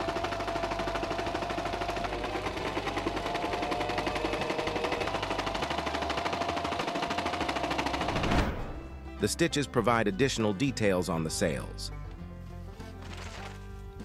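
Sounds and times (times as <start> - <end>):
electric sewing machine stitching: 0.0 - 8.4.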